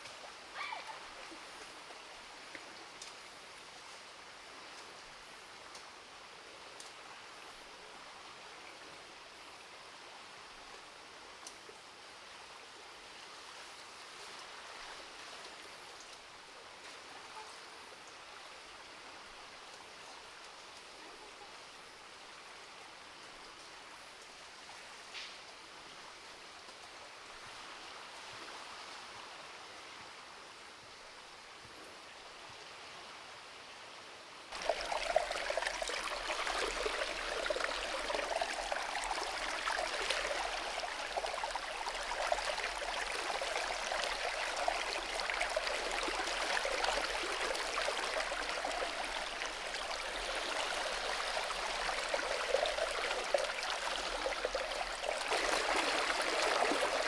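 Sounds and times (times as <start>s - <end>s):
stream babbling over its bed: 0.0s - 57.0s.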